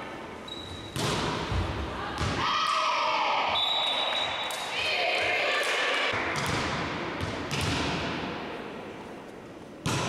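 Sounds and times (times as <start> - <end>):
volleyball hits echoing: 0.9 - 2.6, 5.6 - 8.6.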